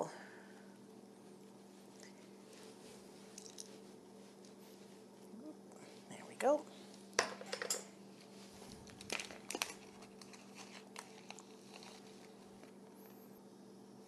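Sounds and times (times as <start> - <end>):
steady low hum: 0.0 - 14.0
plastic packaging crinkling: 8.4 - 12.8.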